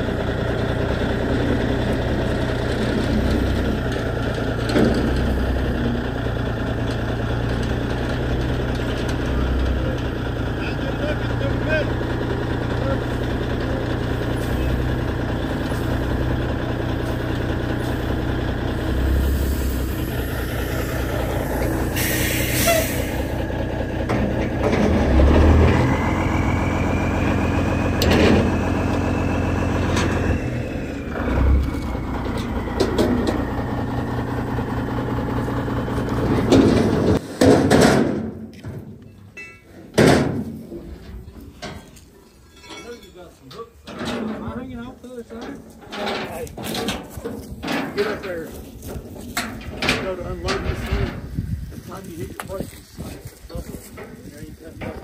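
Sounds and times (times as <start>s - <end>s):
diesel truck engine idling: 0.0s - 37.3s
metallic knocks: 36.4s - 40.8s.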